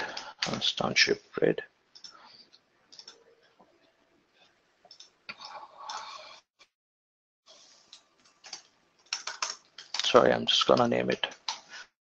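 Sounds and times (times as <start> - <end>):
keyboard typing: 2.9 - 3.6, 4.9 - 6.1, 7.9 - 11.7.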